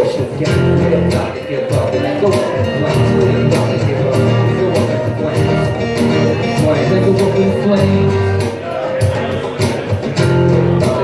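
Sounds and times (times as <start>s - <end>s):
acoustic guitar strumming: 0.0s - 11.0s
percussion steady beat: 0.0s - 11.0s.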